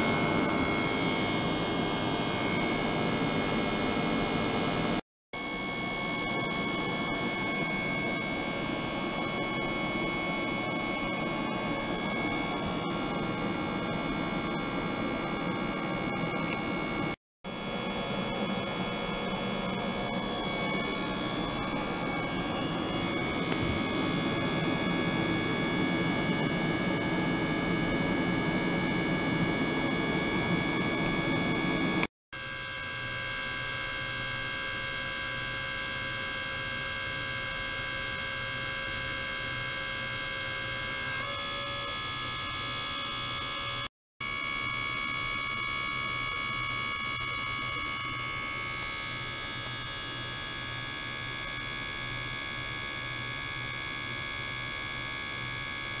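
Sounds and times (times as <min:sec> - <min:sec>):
electrical hum: 0:00.0 - 0:32.1
high whining tones: 0:00.0 - 0:32.1.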